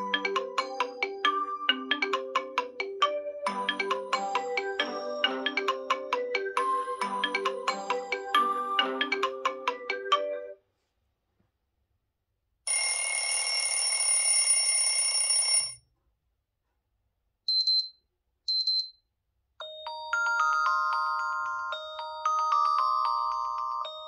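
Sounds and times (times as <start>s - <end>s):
chiming melody: 0.0s - 10.6s, 19.6s - 24.0s.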